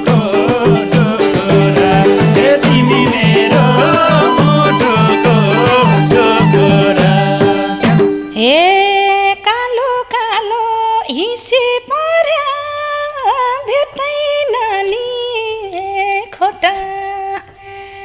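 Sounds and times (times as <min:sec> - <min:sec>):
light percussion: 0:00.0 - 0:08.5.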